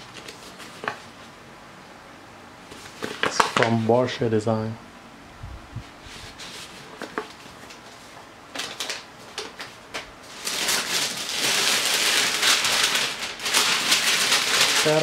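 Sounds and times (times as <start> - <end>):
wrapping paper crinkling and tearing: 0.0 - 1.0, 8.5 - 15.0.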